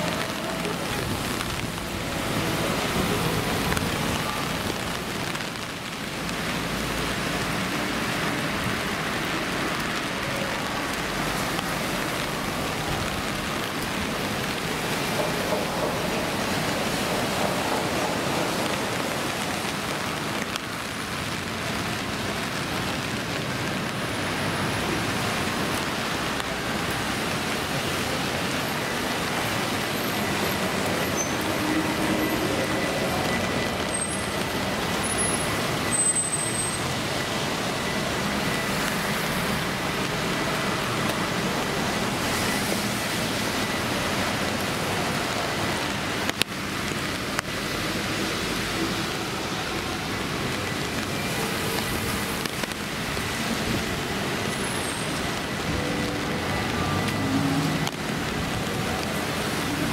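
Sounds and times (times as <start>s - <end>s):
rain hiss: 0.0s - 59.9s
road traffic noise: 0.0s - 59.9s.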